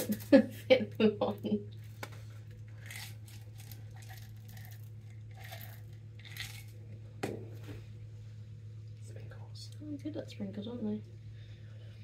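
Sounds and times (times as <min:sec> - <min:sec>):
steady low hum: 0:00.0 - 0:12.0
sprinkles rattling: 0:02.8 - 0:06.7.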